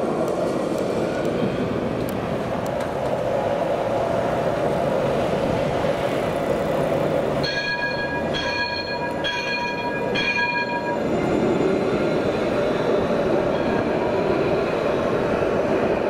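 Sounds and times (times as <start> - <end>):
tram rumbling on tracks: 0.0 - 16.0
warning bell ringing: 7.4 - 11.1.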